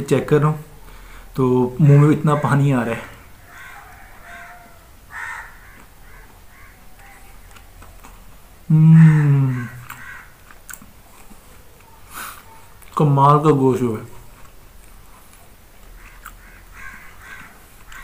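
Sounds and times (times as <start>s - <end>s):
man chewing food: 3.2s - 8.7s, 9.6s - 13.0s, 14.1s - 18.0s
man humming mmm: 8.7s - 9.9s.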